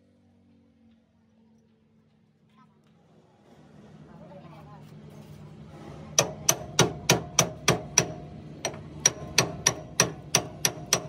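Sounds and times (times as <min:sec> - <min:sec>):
hammer striking steel: 0:06.1 - 0:11.0.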